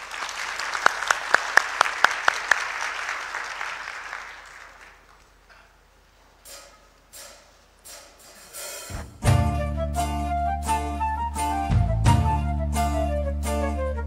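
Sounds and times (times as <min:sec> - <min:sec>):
audience applause: 0:00.0 - 0:05.5
sharp claps: 0:00.0 - 0:05.5.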